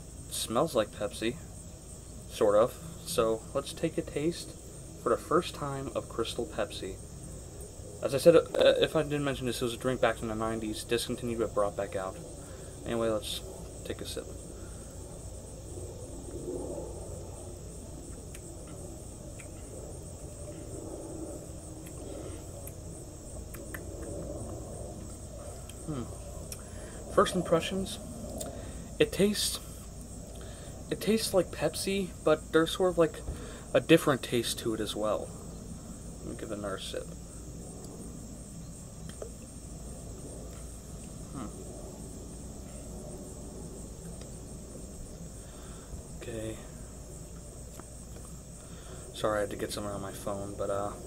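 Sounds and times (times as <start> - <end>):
crickets chirping: 0.0 - 51.0
insects droning: 0.0 - 51.0
wind rumble on microphone: 11.2 - 29.0.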